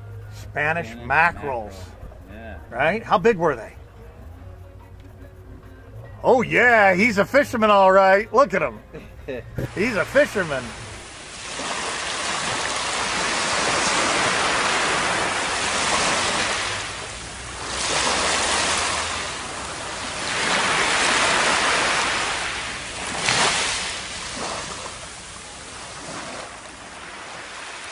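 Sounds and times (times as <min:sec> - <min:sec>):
surf washing up a sandy beach: 0:09.6 - 0:27.9.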